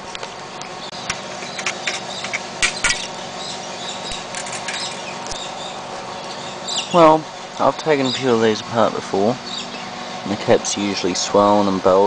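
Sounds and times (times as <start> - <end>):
steady background hum: 0.0 - 12.0
sheet metal clicks and scrapes: 1.1 - 3.1, 4.1 - 5.0.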